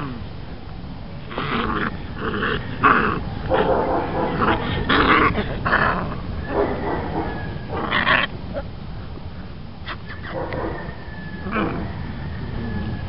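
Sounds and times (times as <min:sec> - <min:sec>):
puppy growling: 0:01.2 - 0:08.7.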